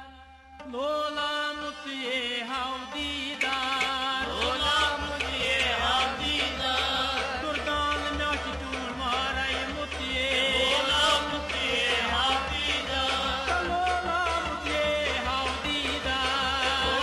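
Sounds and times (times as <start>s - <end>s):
folk instrumental accompaniment: 0.0s - 17.0s
man singing: 0.0s - 17.0s
low pulsing drum beat: 4.2s - 17.0s.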